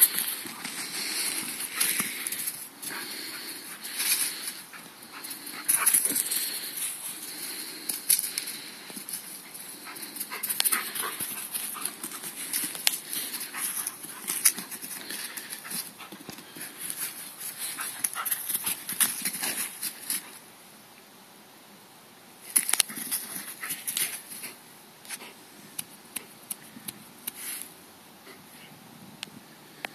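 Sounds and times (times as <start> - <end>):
dog running on grass: 0.0 - 20.2.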